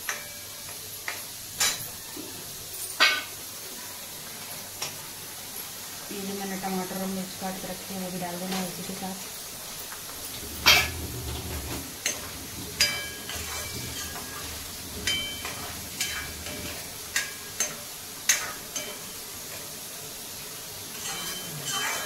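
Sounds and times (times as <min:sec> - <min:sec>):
food sizzling in a pan: 0:00.0 - 0:22.0
spoon clinking on pan: 0:12.0 - 0:14.4, 0:15.0 - 0:19.1, 0:20.9 - 0:22.0.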